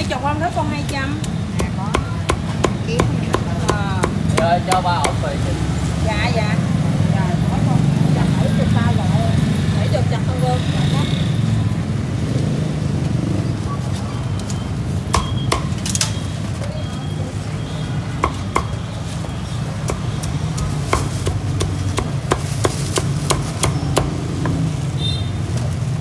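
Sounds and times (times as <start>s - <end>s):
cleaver chopping on wooden block: 0.9s - 5.2s, 15.1s - 15.8s, 18.2s - 18.8s, 19.8s - 24.6s.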